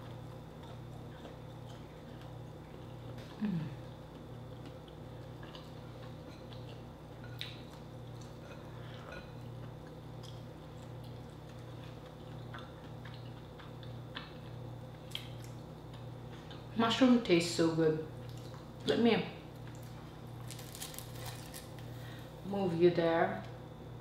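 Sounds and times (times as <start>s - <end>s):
chewing: 0.0s - 16.7s, 18.2s - 18.9s
steady low hum: 0.0s - 24.0s.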